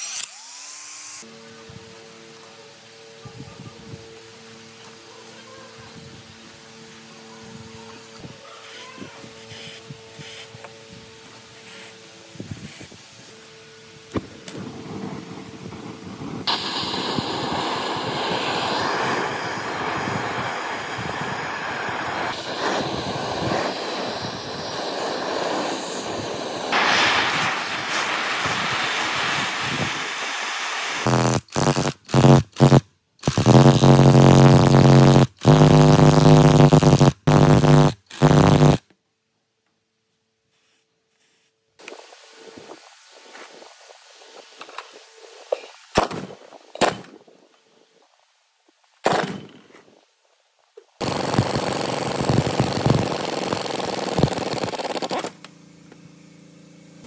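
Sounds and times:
torch flame hissing: 14.2s - 38.8s
impact wrench bursts: 16.5s - 21.1s, 31.0s - 38.8s, 51.0s - 55.5s.

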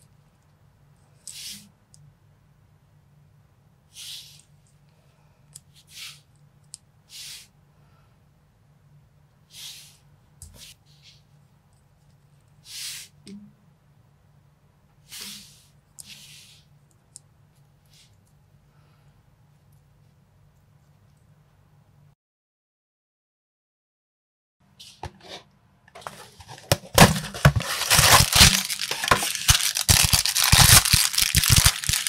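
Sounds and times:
fingers rubbing plastic: 27.4s - 32.0s.

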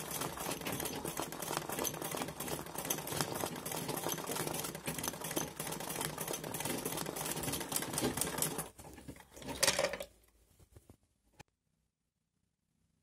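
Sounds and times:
sewing machine stitching: 0.0s - 10.2s.

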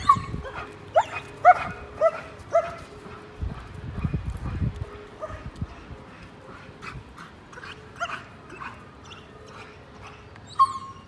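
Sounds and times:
dog yipping: 0.0s - 2.8s, 10.5s - 11.0s
dog whining: 10.4s - 11.0s.

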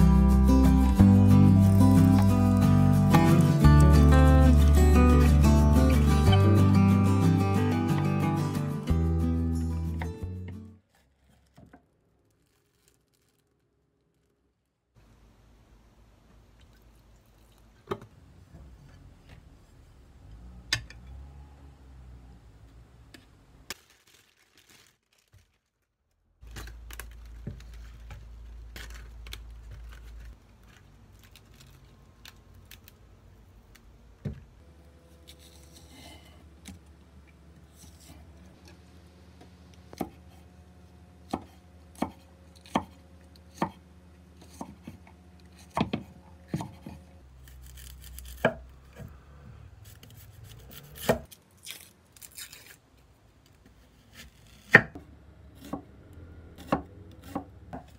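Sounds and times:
knife chopping on wooden board: 39.9s - 40.3s, 41.3s - 43.8s, 44.4s - 45.0s, 45.6s - 47.0s, 50.7s - 51.3s.

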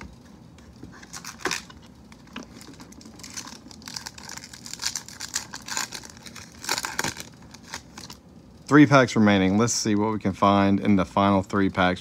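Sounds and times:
foil wrapper crinkling: 1.0s - 8.2s.

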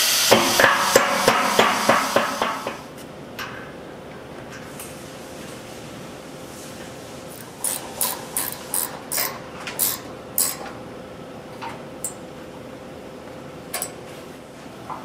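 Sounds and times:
wrench clicking: 7.4s - 10.7s.

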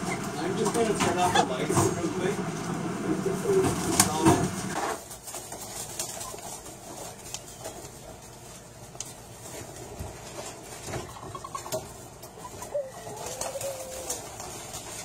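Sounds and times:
dove cooing: 11.0s - 14.8s.

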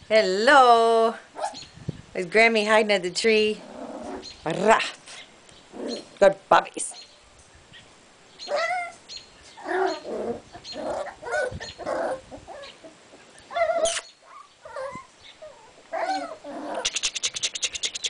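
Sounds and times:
puppies yipping and whining: 8.4s - 18.0s.

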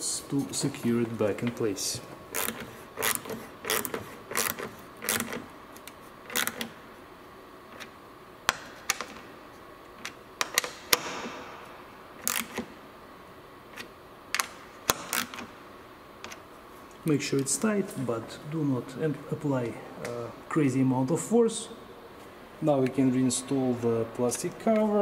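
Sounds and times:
hand ratchet clicking: 2.3s - 6.7s, 12.2s - 12.6s.

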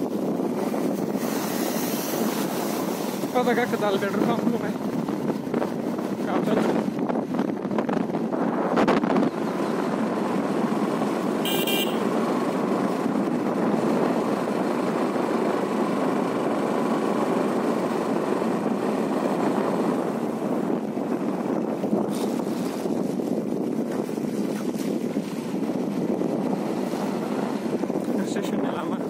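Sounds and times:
motorcycle riding: 0.0s - 29.0s
vehicle horn beep: 11.4s - 12.1s.

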